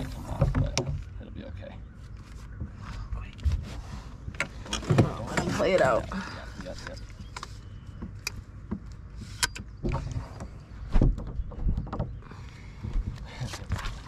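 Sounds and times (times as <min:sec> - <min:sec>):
fishing gear clicking and knocking: 0:04.3 - 0:10.5.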